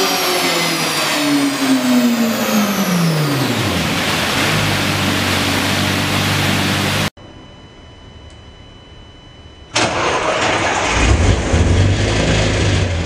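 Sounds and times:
car engine revs falling to idle: 9.8 - 13.0.

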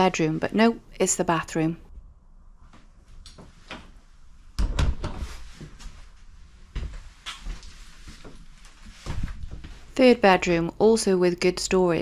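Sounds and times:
footsteps on hollow floor: 5.0 - 9.9.

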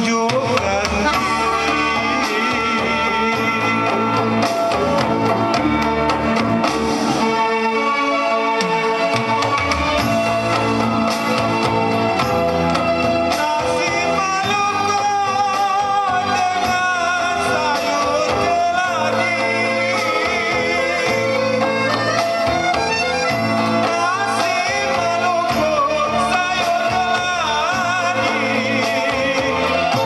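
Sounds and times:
man singing into microphone: 0.0 - 5.4, 13.3 - 30.0
karaoke backing track: 0.0 - 30.0.

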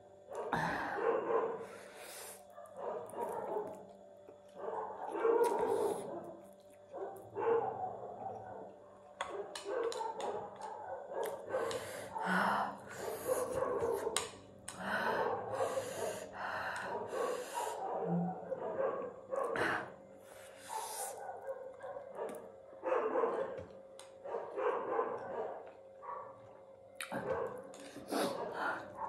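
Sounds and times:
dogs barking: 0.3 - 19.7, 20.6 - 29.0
noodles being slurped and chewed: 5.4 - 6.8.

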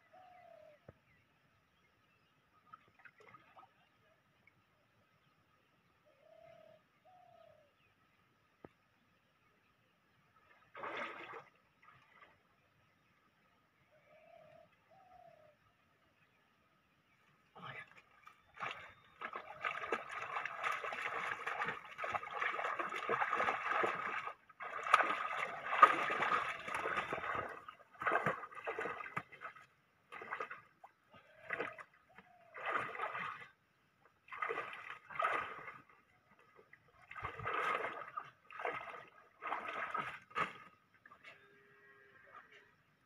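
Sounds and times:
water splashing and sloshing: 2.6 - 3.7, 10.4 - 12.8, 17.7 - 41.4.

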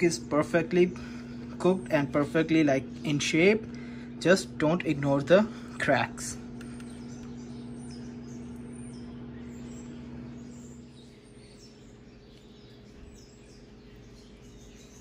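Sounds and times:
low hum: 0.0 - 15.0
faint bird chirps: 5.6 - 15.0.

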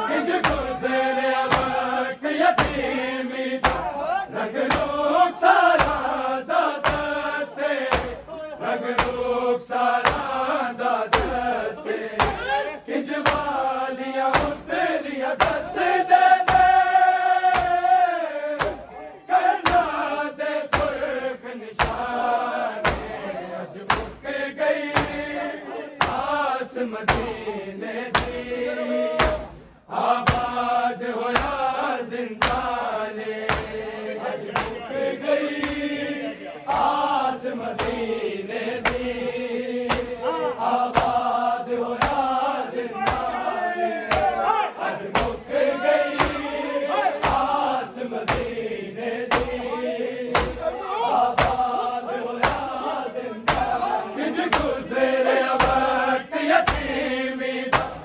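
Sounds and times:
men chanting lament: 0.0 - 58.0
hands beating chests: 0.3 - 0.8, 1.4 - 2.9, 3.6 - 4.0, 4.6 - 9.4, 10.0 - 10.4, 11.1 - 11.5, 12.1 - 12.6, 13.2 - 18.0, 18.6 - 20.1, 20.7 - 21.1, 21.8 - 23.2, 23.8 - 25.4, 26.0 - 26.5, 27.1 - 27.4, 28.1 - 28.5, 29.1 - 29.6, 30.2 - 30.7, 31.3 - 31.8, 32.4 - 33.8, 34.5 - 34.8, 35.4 - 36.1, 36.7 - 38.1, 38.8 - 39.2, 39.8 - 43.5, 44.1 - 44.4, 45.0 - 46.6, 47.2 - 48.6, 49.3 - 49.7, 50.3 - 50.7, 51.3 - 51.8, 52.4 - 54.8, 55.4 - 55.9, 56.5 - 57.0, 57.7 - 58.0.

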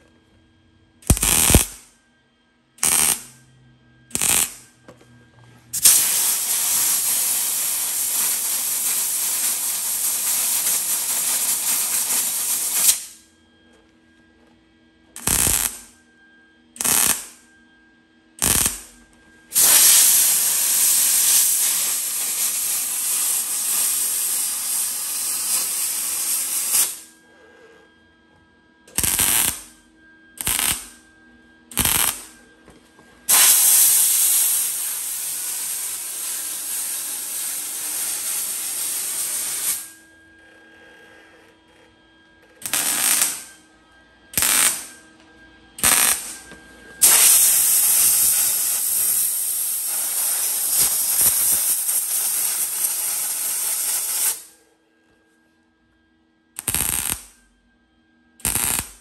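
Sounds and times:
welder crackling bursts: 1.0 - 1.8, 2.8 - 3.3, 4.1 - 4.6, 5.8 - 13.2, 15.2 - 15.8, 16.8 - 17.3, 18.4 - 18.9, 19.5 - 27.0, 29.0 - 29.7, 30.4 - 31.0, 31.7 - 32.3, 33.3 - 39.9, 42.6 - 43.5, 44.4 - 44.9, 45.8 - 46.4, 47.0 - 54.5, 56.6 - 57.3, 58.4 - 59.0
compressed air hiss: 5.8 - 13.2, 19.6 - 27.1, 33.3 - 39.9, 47.0 - 54.6.

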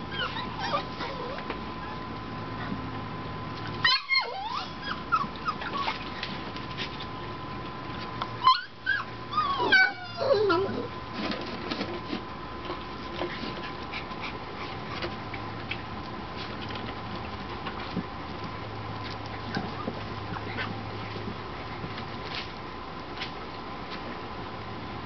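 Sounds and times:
puppies whining and yipping: 0.0 - 2.1, 3.7 - 6.6, 8.4 - 11.0, 19.4 - 20.8
puppy whimpers: 0.0 - 2.1, 3.8 - 6.4, 8.4 - 10.9.

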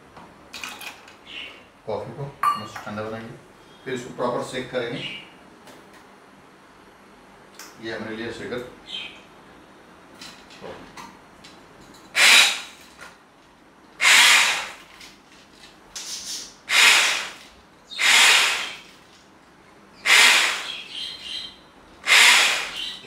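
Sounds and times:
hand blender whisking: 14.0 - 14.8, 16.7 - 17.4, 18.0 - 18.9, 20.1 - 20.7, 22.1 - 22.8.

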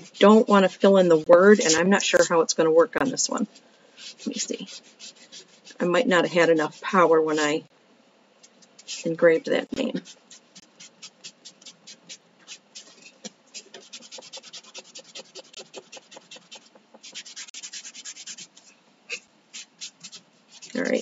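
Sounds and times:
baby wipe rubbing on wood: 3.0 - 5.8, 10.0 - 21.0.

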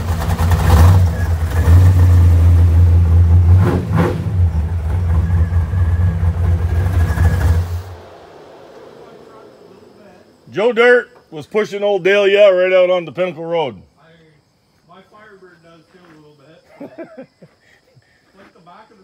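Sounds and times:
car engine rumbling and revving: 0.0 - 10.6.

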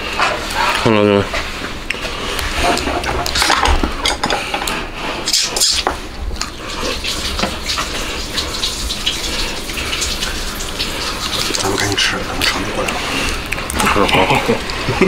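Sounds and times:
wet sucking and chewing: 4.7 - 14.9.

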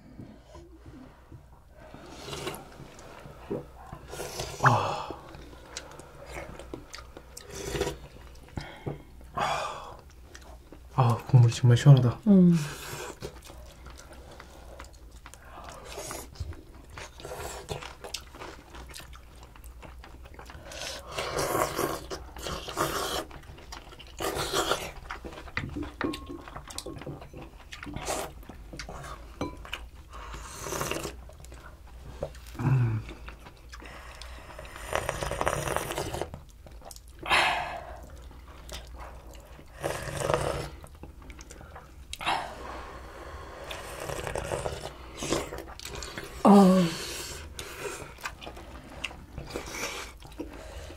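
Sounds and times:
people chewing: 0.0 - 50.9
people slurping broth: 1.8 - 8.2, 20.6 - 23.4, 30.0 - 31.2, 32.6 - 36.4, 38.8 - 40.9, 42.2 - 50.9.

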